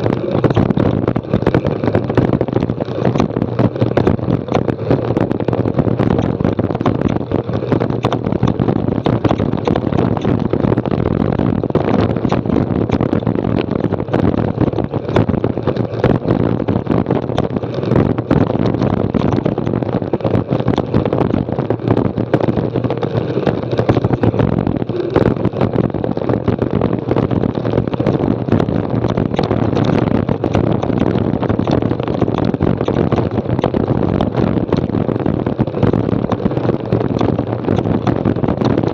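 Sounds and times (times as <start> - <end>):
bike rattling over stones: 0.0 - 38.9
wind buffeting microphone: 0.0 - 38.9.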